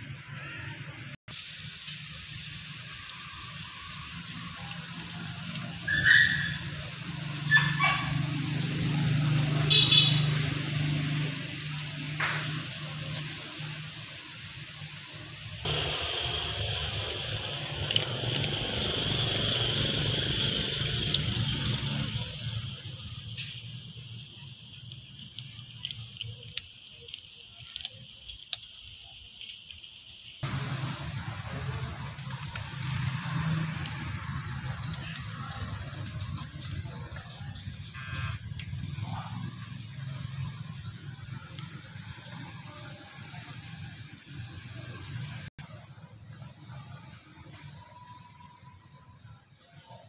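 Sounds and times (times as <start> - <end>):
insects droning: 1.9 - 45.4
dogs yipping and barking: 5.7 - 8.6
cat chewing dry kibble: 15.7 - 19.4.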